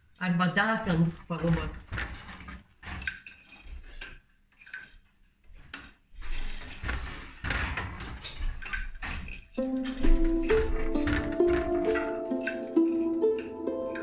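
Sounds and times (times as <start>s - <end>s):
wooden loom clacking: 5.6s - 14.0s.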